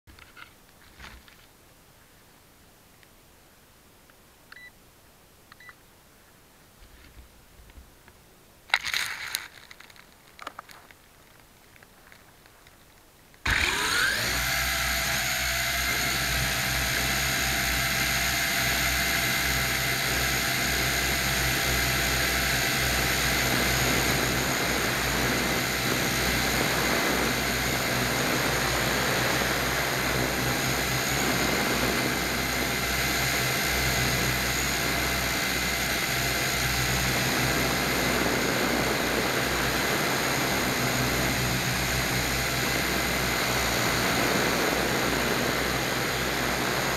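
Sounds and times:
electric motors and propellers whining: 13.4 - 46.9.

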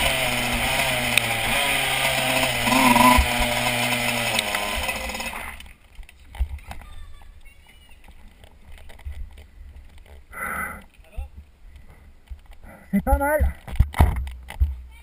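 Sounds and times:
two-stroke kart engine running: 0.0 - 5.7.

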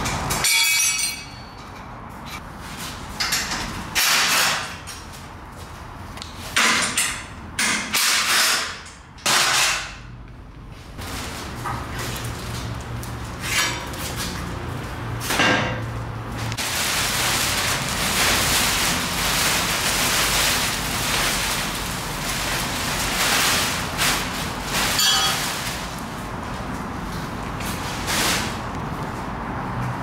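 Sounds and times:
plastic sheeting rustling: 11.0 - 14.4, 16.4 - 29.3.

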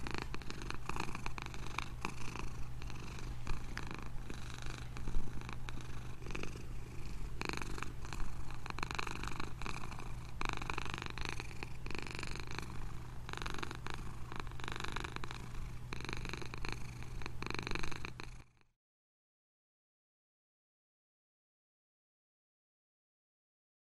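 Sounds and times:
cat purring: 0.0 - 18.7.

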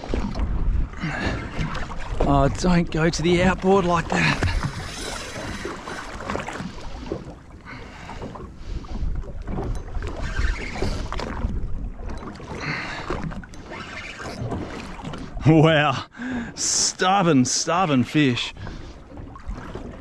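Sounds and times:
wind buffeting microphone: 0.0 - 13.5
water lapping against boat hull: 0.0 - 20.0.

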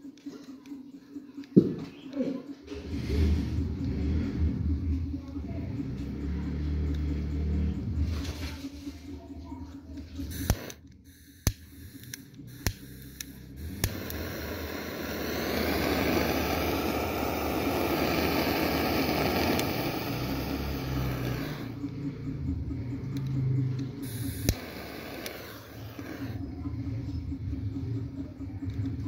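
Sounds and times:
lighter clicking: 10.2 - 21.8, 23.1 - 26.4
lighter gas hiss: 10.2 - 21.8, 24.0 - 26.4.

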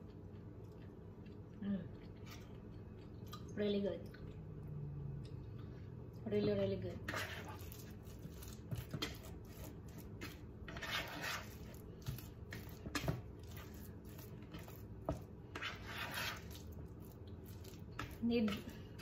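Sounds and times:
fork mashing mixture in bowl: 6.4 - 19.0.

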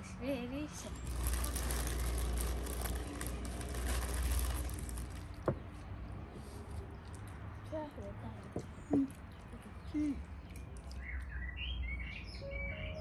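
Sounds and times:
baking paper rustling: 1.0 - 5.6.

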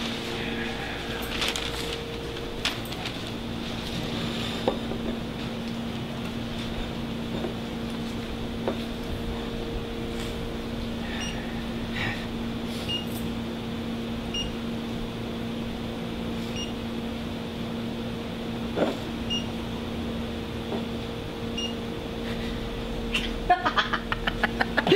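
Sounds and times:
electrical hum: 0.0 - 24.9.

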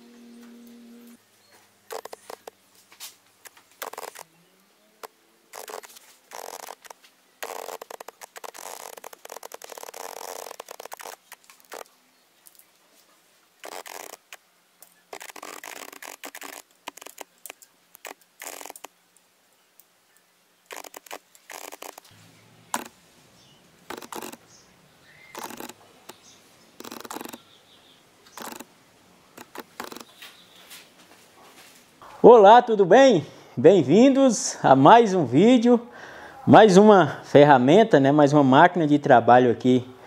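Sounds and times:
cables rustling and clicking: 1.5 - 4.3, 5.0 - 23.0, 23.8 - 24.5, 25.3 - 27.4, 28.2 - 28.7, 29.3 - 31.9.

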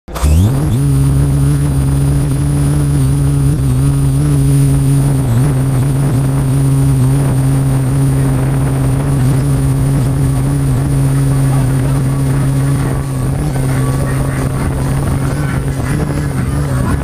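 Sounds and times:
drone motors hovering hum: 0.1 - 17.0.

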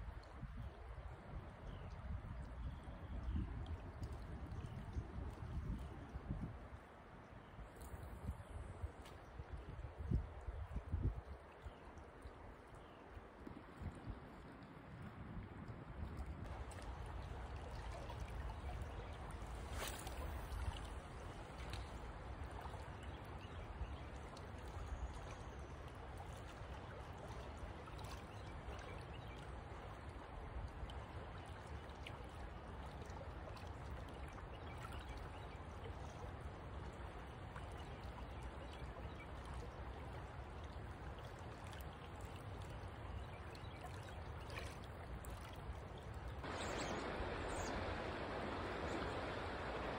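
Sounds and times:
river current flowing: 16.4 - 34.5, 38.8 - 49.9.

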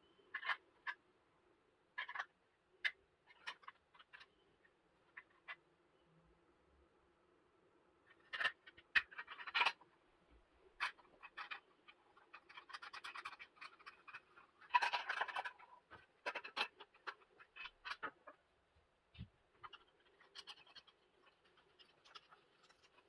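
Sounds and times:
plastic parts clicking and rattling: 0.3 - 1.0, 1.9 - 4.4, 8.1 - 9.9, 10.8 - 18.4, 19.1 - 23.0.

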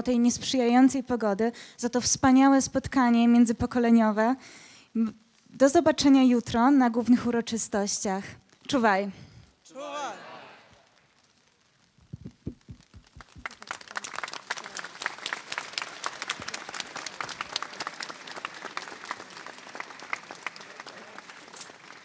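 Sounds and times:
dull thumps: 12.0 - 13.5
crowd applauding: 12.5 - 22.0.

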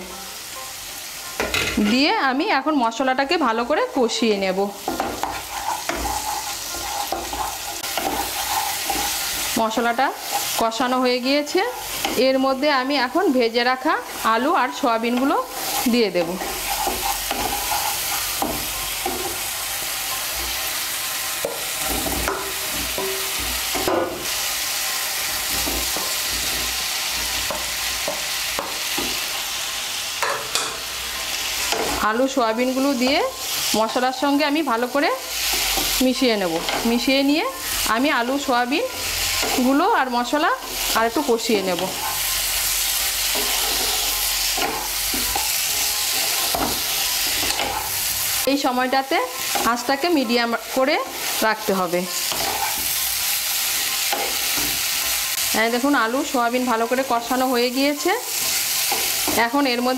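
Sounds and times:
spice paste sizzling: 0.0 - 59.9
spatula scraping and stirring: 4.6 - 29.6, 34.8 - 48.5, 49.2 - 55.4, 58.2 - 59.6.

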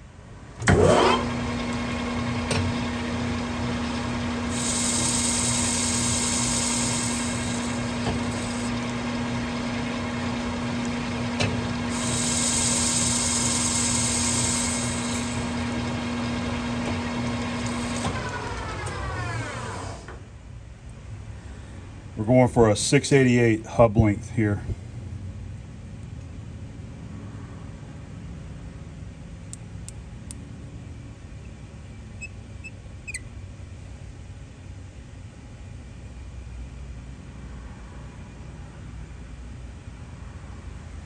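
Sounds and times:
metal lathe humming: 4.1 - 20.1
lathe spindle winding down: 4.4 - 20.2
lathe tool cutting hiss: 4.5 - 8.7, 11.9 - 15.7, 17.4 - 18.3.

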